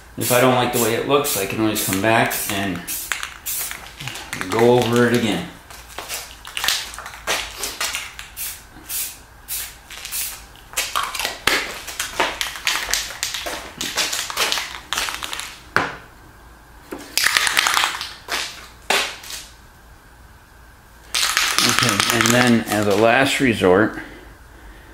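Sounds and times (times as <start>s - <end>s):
spray paint can spraying: 0.2s - 5.2s, 6.0s - 15.6s, 17.2s - 19.5s, 21.1s - 23.1s.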